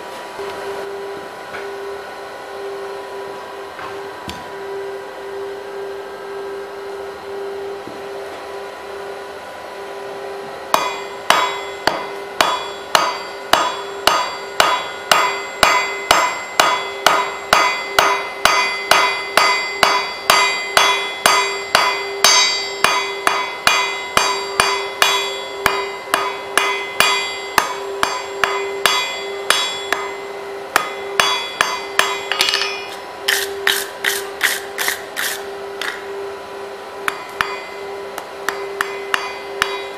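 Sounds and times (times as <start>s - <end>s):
steady hum: 0.0s - 39.9s
hammer striking hot bar on anvil: 10.7s - 36.0s, 37.0s - 39.9s.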